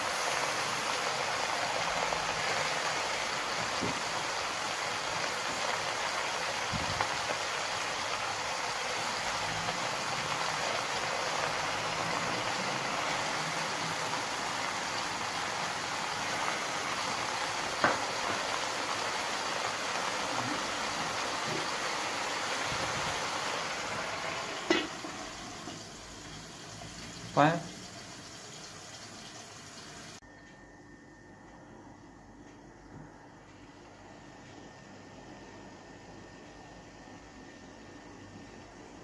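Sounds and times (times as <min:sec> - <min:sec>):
pot hissing on gas stove: 0:00.0 - 0:30.2.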